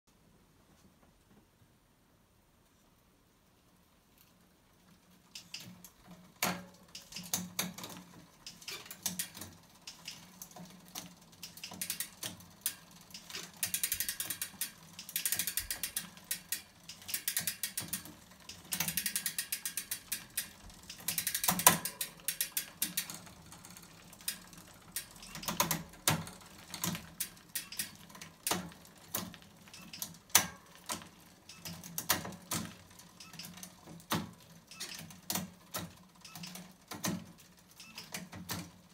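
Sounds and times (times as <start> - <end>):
bicycle chain rattling and clicking: 4.8 - 38.9
derailleur shifting clicks: 6.9 - 33.8.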